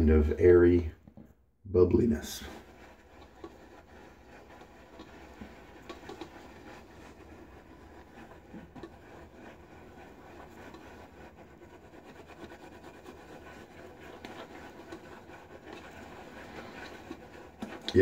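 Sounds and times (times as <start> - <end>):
shaving brush swishing lather: 2.0 - 18.0.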